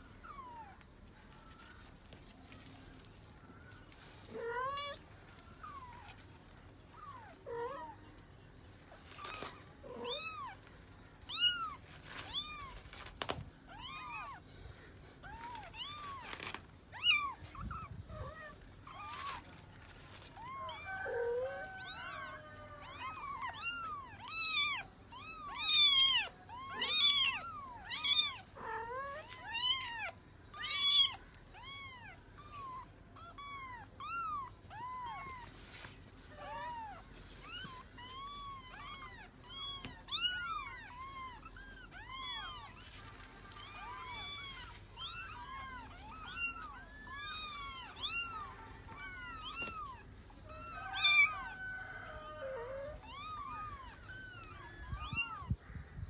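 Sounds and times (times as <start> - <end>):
kittens mewing: 9.0 - 35.6, 36.2 - 55.7.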